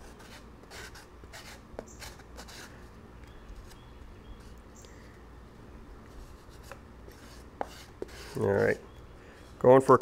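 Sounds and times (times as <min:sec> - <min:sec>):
putty knife scraping epoxy: 0:00.0 - 0:02.7
low steady hum: 0:00.0 - 0:10.0.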